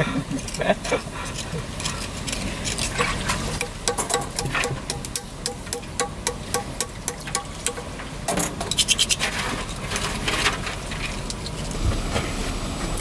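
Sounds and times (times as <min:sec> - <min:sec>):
metallic clinking and scraping: 0:00.0 - 0:11.8
tools clicking on metal: 0:00.3 - 0:09.2.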